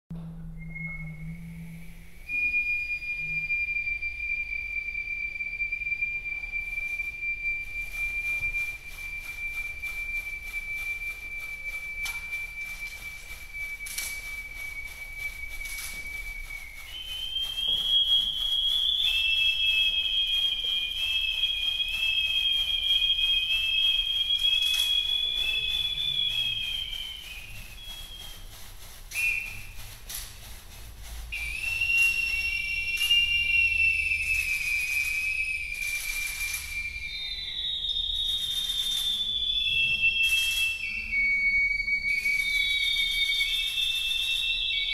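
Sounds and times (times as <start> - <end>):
high flute whistle tones: 0.1 - 44.9
dry leaves rustling: 24.6 - 32.4.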